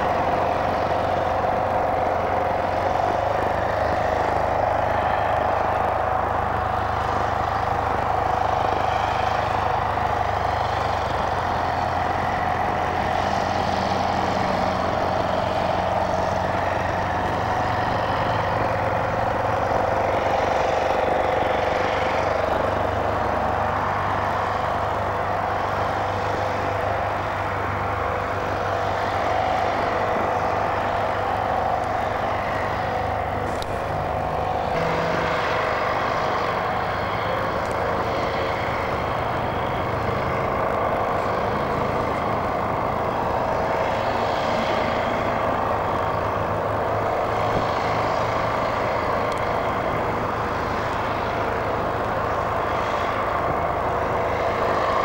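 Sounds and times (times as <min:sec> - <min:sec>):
propeller engines droning: 0:00.0 - 0:55.0.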